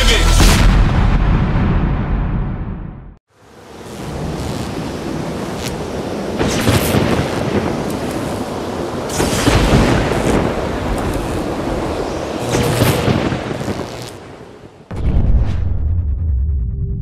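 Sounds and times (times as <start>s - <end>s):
wind: 3.3s - 15.7s
rain: 3.4s - 14.9s
thunder rolling: 4.1s - 17.0s.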